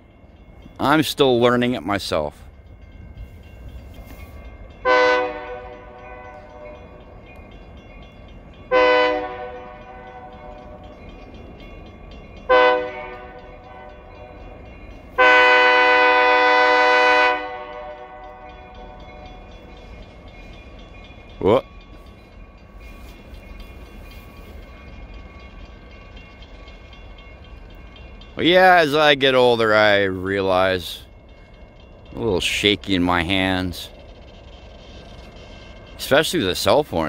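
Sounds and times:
locomotive air horn blasts: 0:04.8 - 0:05.8, 0:08.7 - 0:10.2, 0:12.5 - 0:13.9, 0:15.2 - 0:18.2.

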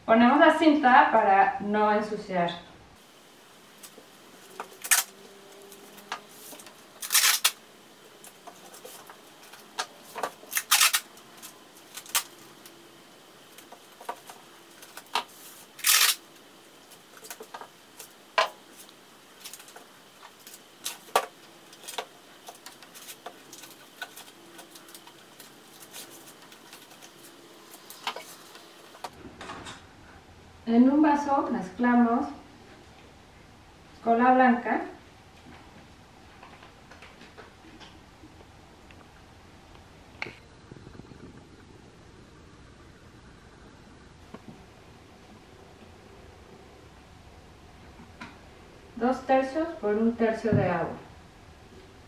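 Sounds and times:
tape ripping off roll: 0:04.6 - 0:05.2, 0:06.1 - 0:07.6, 0:08.7 - 0:12.4, 0:14.8 - 0:16.2.

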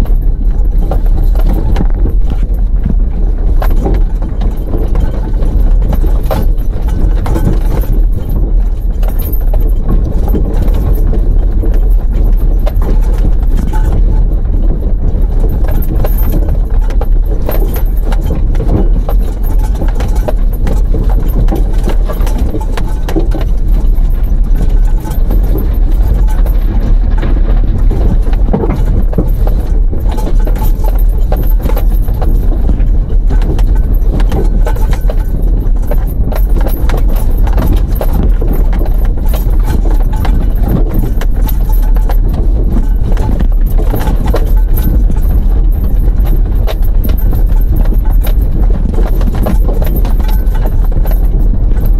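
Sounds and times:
knocks and rattles: 0:00.0 - 0:51.9
vehicle rumbling over gravel: 0:00.0 - 0:51.9.

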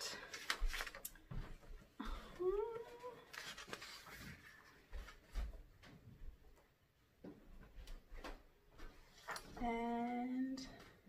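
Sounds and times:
paper rustling and shuffling: 0:00.0 - 0:01.8, 0:02.8 - 0:06.0, 0:08.2 - 0:09.6
person humming: 0:02.2 - 0:03.2.

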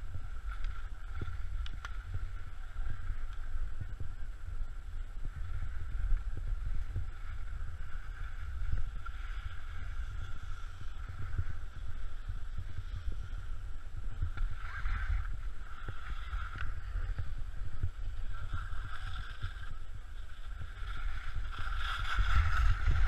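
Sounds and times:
wind buffeting microphone: 0:00.0 - 0:23.0
skis scraping over snow: 0:05.1 - 0:23.0.

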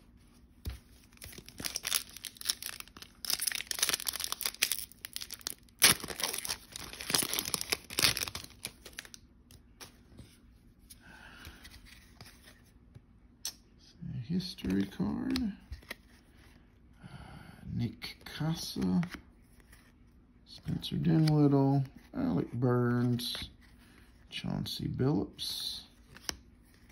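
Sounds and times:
cards being handled: 0:00.2 - 0:13.0, 0:14.4 - 0:16.5, 0:20.7 - 0:22.1, 0:26.0 - 0:26.9
foil pack tearing and crinkling: 0:01.1 - 0:09.2.

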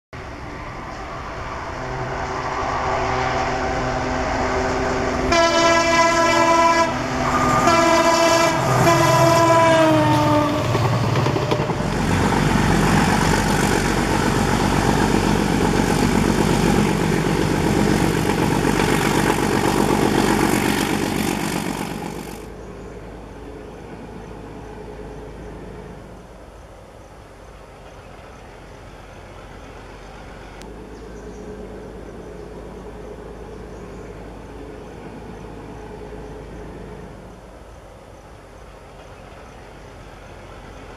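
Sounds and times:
diesel locomotive engine: 0:00.2 - 0:40.9
locomotive horn blasts: 0:01.8 - 0:10.8.

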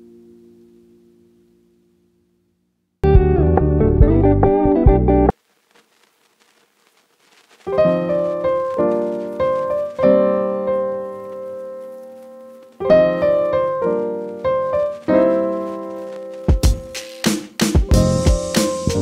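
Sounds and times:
slow piano music: 0:07.7 - 0:19.0.

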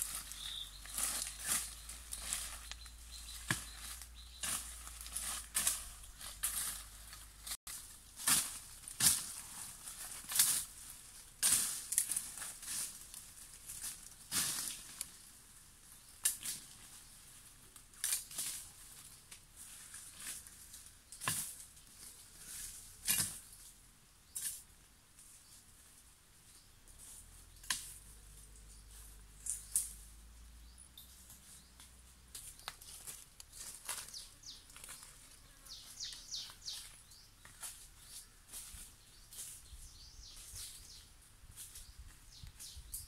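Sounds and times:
footsteps crunching dry leaves: 0:00.0 - 0:15.2, 0:31.2 - 0:42.9.

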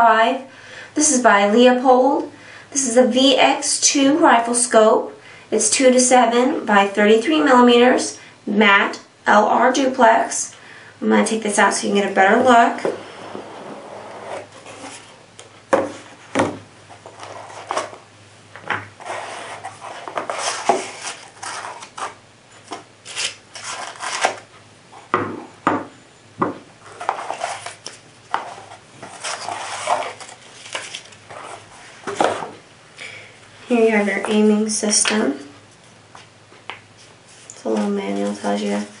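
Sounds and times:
paper rustling: 0:15.8 - 0:18.0, 0:19.0 - 0:24.5, 0:26.8 - 0:32.6.

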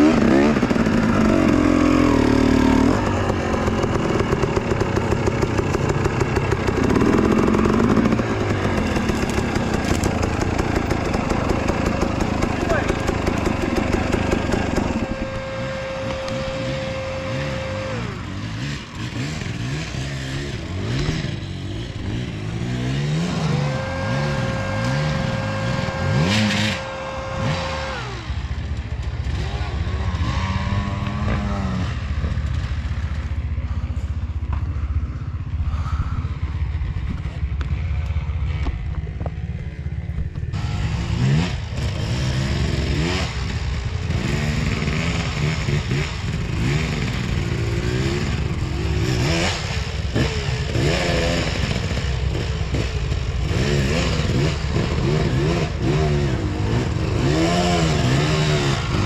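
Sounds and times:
clatter: 0:00.0 - 0:17.7, 0:27.8 - 0:35.0
motorcycle engines revving: 0:00.0 - 0:59.0.

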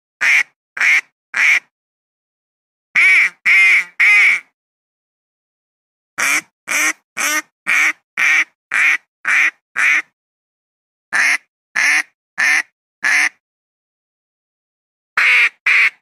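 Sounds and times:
duck quacking: 0:00.2 - 0:01.7, 0:03.0 - 0:04.5, 0:06.2 - 0:10.1, 0:11.2 - 0:13.4, 0:15.2 - 0:16.0.

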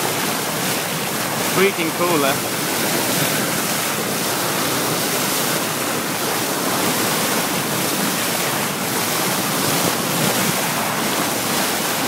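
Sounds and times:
seawater rushing from bow wave: 0:00.0 - 0:12.0.

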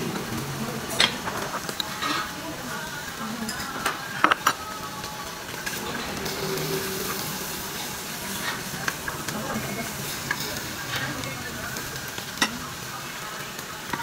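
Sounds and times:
pork sizzling on a grill: 0:00.0 - 0:14.0
metal utensils clicking: 0:03.4 - 0:04.7.

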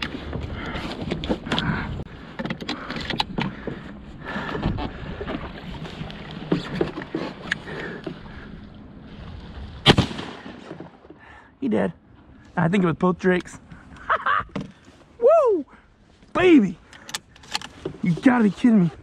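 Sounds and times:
gear knocking against kayak: 0:00.0 - 0:08.4
paddle strokes splashing: 0:02.9 - 0:11.2.

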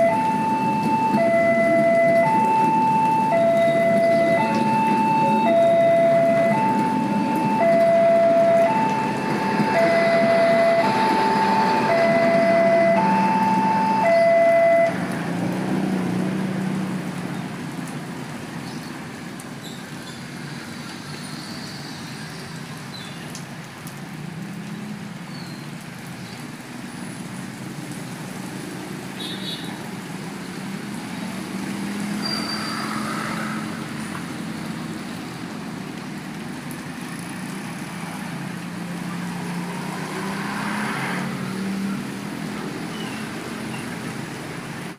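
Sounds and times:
two-tone crossing alarm: 0:00.0 - 0:15.0
vehicles driving on wet road: 0:00.0 - 0:44.9.

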